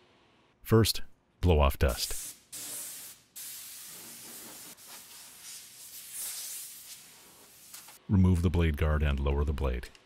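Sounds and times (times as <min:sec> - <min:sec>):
compressed air blow gun hissing: 0:02.1 - 0:08.0.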